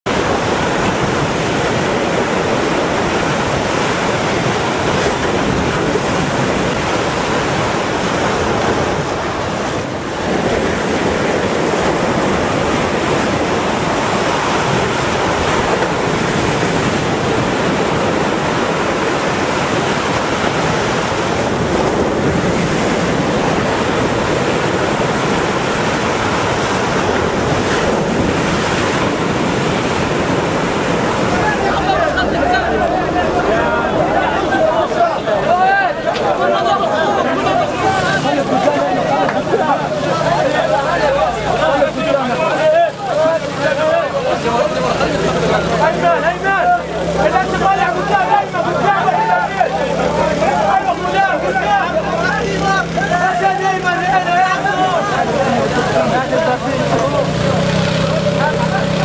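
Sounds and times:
sea waves rushing: 0:00.0 - 0:59.0
wind buffeting microphone: 0:00.1 - 0:45.8.

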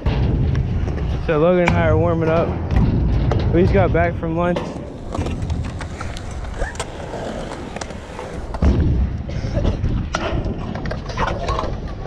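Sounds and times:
scooter wheels rolling and clattering: 0:04.4 - 0:12.0.

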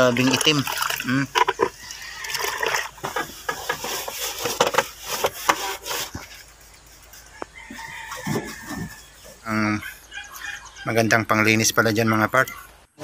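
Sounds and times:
wet cloth wiping sheet metal: 0:03.0 - 0:06.5.

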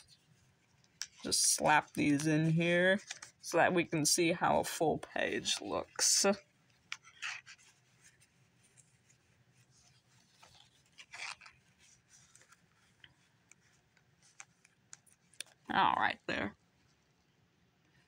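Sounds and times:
cards scraping into plastic pockets: 0:03.0 - 0:03.4, 0:06.8 - 0:09.0, 0:10.0 - 0:15.6.

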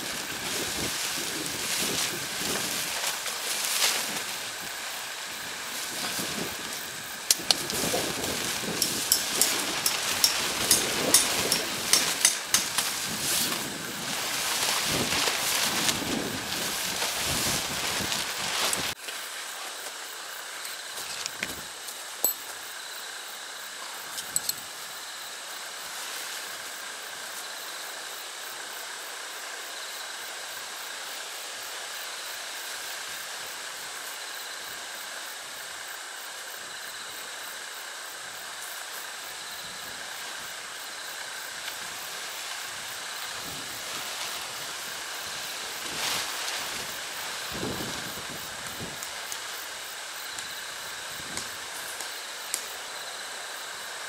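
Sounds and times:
tent fabric rustling: 0:00.0 - 0:19.0, 0:41.6 - 0:49.0
outdoor hiss: 0:00.0 - 0:54.0.

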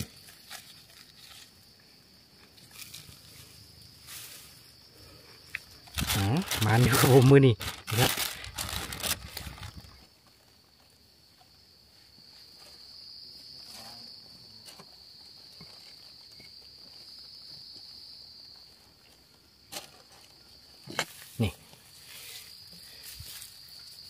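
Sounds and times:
insect trilling: 0:00.0 - 0:11.0, 0:20.3 - 0:24.0
plastic bag rustling: 0:05.9 - 0:10.1.

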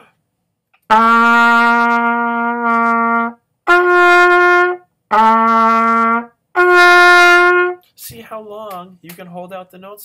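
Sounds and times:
trumpet held notes: 0:00.9 - 0:07.8.

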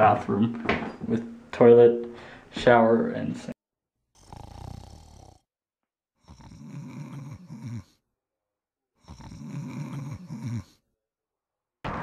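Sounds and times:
man snoring: 0:04.1 - 0:05.6, 0:06.2 - 0:08.1, 0:08.9 - 0:10.9.

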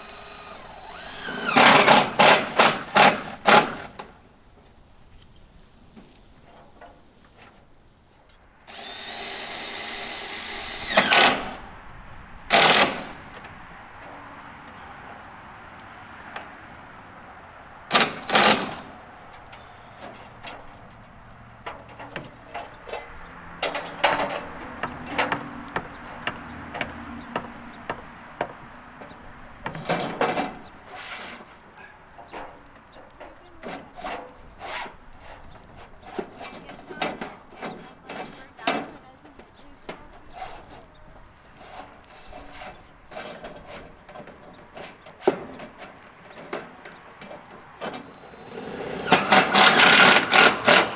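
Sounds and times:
handheld power tool running: 0:00.0 - 0:03.6, 0:08.7 - 0:11.6, 0:48.8 - 0:50.9
light taps and knocks: 0:19.3 - 0:30.7.

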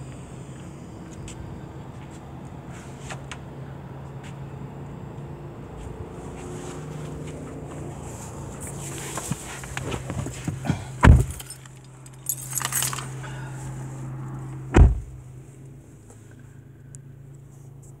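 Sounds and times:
car door shutting: 0:09.0 - 0:11.6, 0:14.7 - 0:15.2
metallic jingle: 0:11.2 - 0:13.2.

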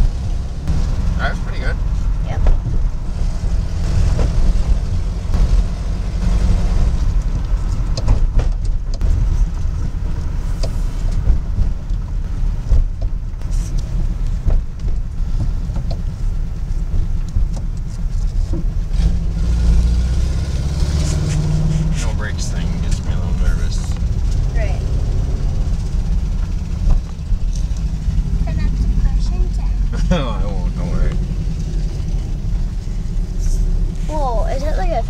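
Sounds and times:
engine and road rumble: 0:00.0 - 0:35.0
light rattles and knocks: 0:07.0 - 0:19.0, 0:25.5 - 0:28.7.

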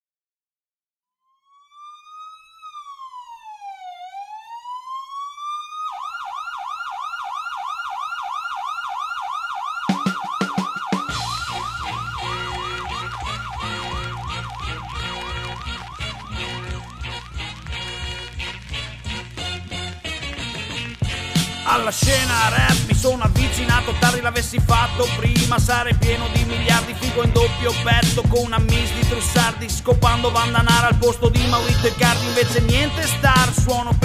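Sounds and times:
police siren wail and yelp: 0:01.2 - 0:34.0
hip-hop beat: 0:09.8 - 0:34.0
drum hits: 0:09.9 - 0:12.3, 0:21.0 - 0:29.2.

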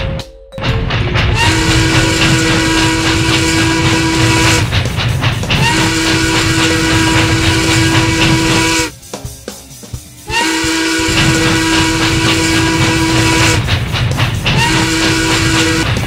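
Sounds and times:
train running noise: 0:00.0 - 0:16.0
steam locomotive whistle blasts: 0:01.3 - 0:04.7, 0:05.6 - 0:09.0, 0:10.3 - 0:13.7, 0:14.5 - 0:16.0.

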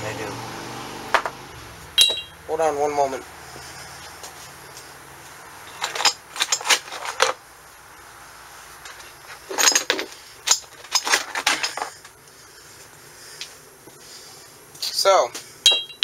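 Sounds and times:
metal gears clinking: 0:02.0 - 0:02.3, 0:05.6 - 0:07.3, 0:09.4 - 0:11.9, 0:15.7 - 0:16.0.

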